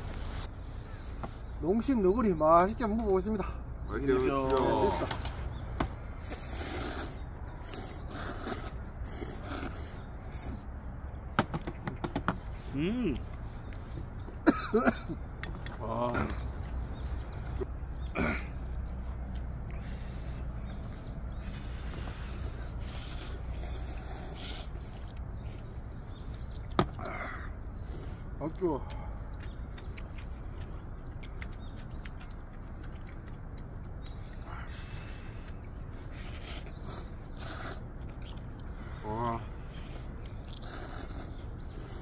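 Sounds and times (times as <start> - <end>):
people slurping noodles: 6.2 - 10.7, 34.0 - 42.0.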